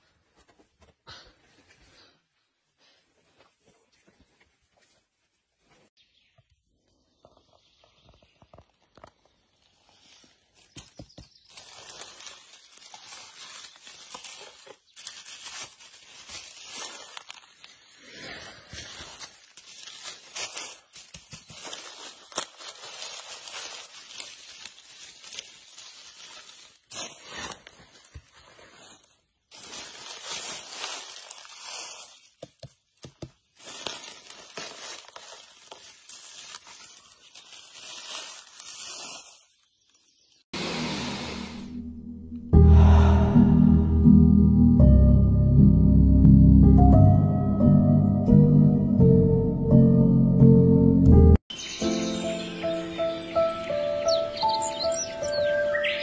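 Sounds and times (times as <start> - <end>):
dry leaves rustling and crackling: 8.8 - 40.4.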